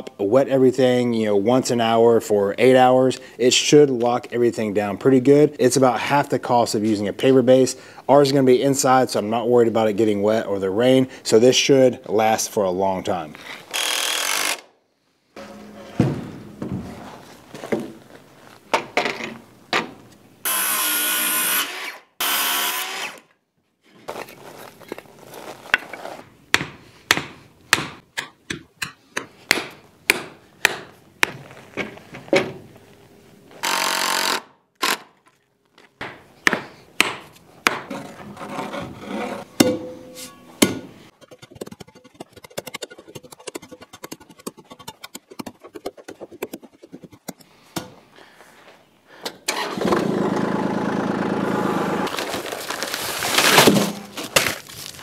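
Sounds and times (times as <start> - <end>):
cordless drill driving screws: 13.7 - 14.7, 33.6 - 35.1
hammer striking wooden boards: 26.5 - 28.6, 29.2 - 31.4, 36.0 - 37.9, 39.6 - 42.7
scraping and tapping: 41.1 - 47.5.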